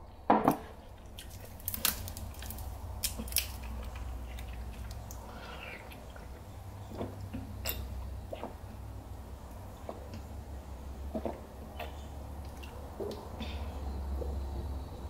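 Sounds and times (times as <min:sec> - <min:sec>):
steady low hum: 0:00.0 - 0:15.0
plastic bottle crinkling: 0:01.2 - 0:03.8.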